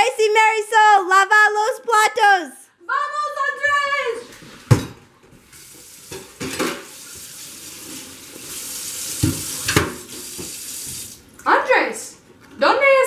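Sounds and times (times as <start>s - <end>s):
tap water running into sink: 5.5s - 11.3s
dishes clattering: 6.1s - 7.0s.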